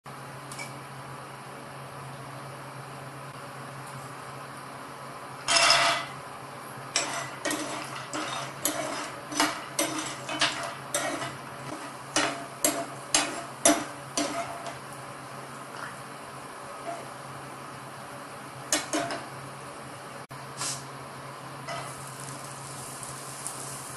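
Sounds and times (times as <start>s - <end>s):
metal spoon scraping pan: 7.0s - 14.8s.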